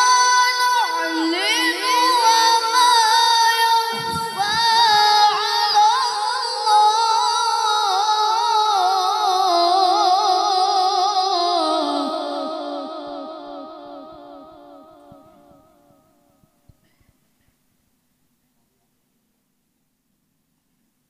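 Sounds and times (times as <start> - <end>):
boy reciting melodically over pa: 0.0 - 15.9.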